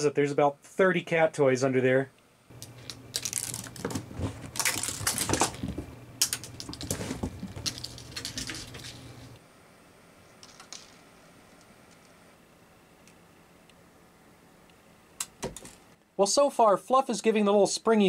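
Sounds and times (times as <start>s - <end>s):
cat claws scrabbling: 2.6s - 9.4s.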